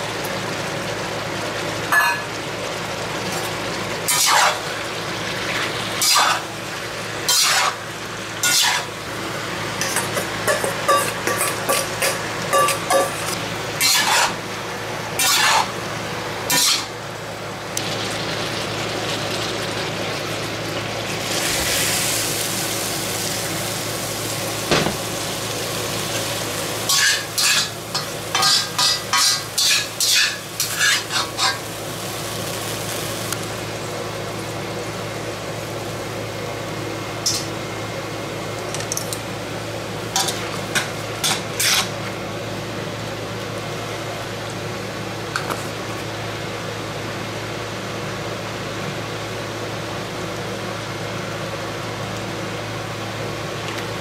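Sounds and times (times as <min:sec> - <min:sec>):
food sizzling in a wok: 0:00.0 - 0:38.6, 0:39.3 - 0:54.0
metal spatula scraping pan: 0:07.3 - 0:07.8, 0:13.8 - 0:14.4, 0:15.2 - 0:15.7, 0:28.3 - 0:31.6
metal utensils clinking on pan: 0:09.8 - 0:13.2, 0:26.9 - 0:31.6.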